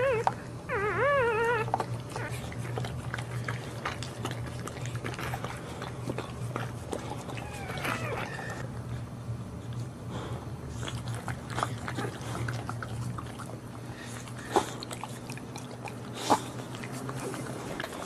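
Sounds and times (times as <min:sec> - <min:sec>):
puppy squeaks: 0:00.0 - 0:02.4, 0:07.4 - 0:08.6
puppies mouth and shuffling sounds: 0:00.0 - 0:18.0.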